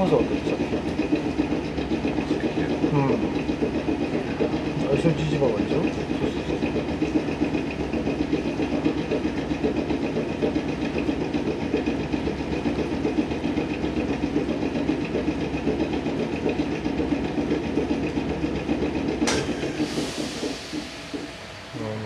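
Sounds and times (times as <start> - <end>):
air compressor clattering: 0.0 - 22.0
air hiss: 19.5 - 22.0.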